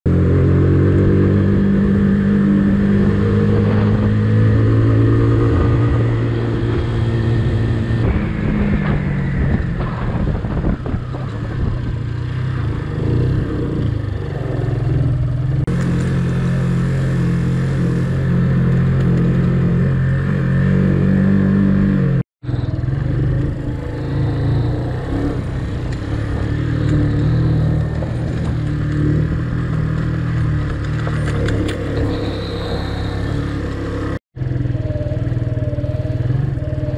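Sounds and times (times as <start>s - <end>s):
motorcycle engine running: 0.1s - 36.9s.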